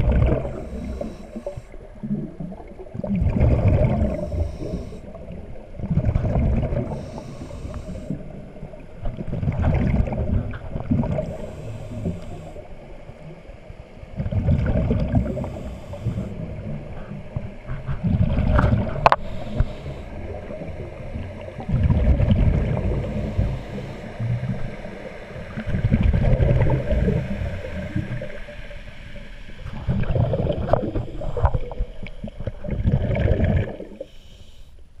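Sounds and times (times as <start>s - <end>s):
rumbling exhaust bubbles: 0.0s - 4.9s, 5.8s - 7.9s, 14.2s - 24.8s, 29.7s - 34.0s
diver inhaling through regulator: 0.2s - 1.9s, 3.7s - 5.3s, 6.7s - 8.4s, 11.1s - 12.9s, 15.0s - 18.1s, 18.9s - 20.9s, 22.4s - 25.6s, 33.6s - 34.9s.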